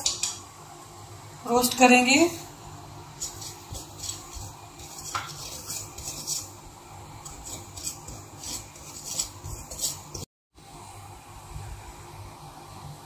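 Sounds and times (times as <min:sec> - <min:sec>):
spatula scraping seeds in a pan: 0:03.1 - 0:10.3.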